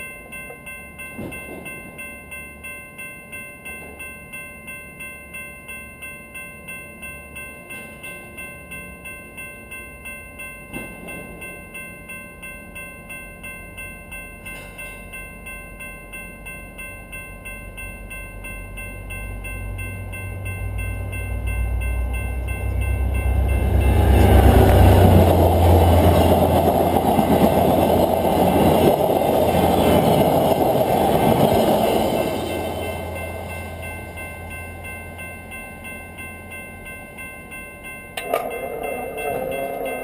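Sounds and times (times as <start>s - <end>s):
railway crossing bell ringing: 0.0s - 40.0s
train wheels rolling on rails: 1.0s - 2.0s, 10.6s - 11.6s, 20.4s - 35.3s
train rumble: 19.1s - 36.4s, 38.2s - 40.0s.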